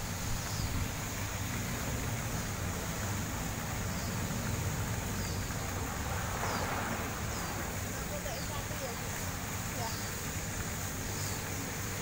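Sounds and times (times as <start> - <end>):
fountain jets splashing into water: 0.0 - 12.0.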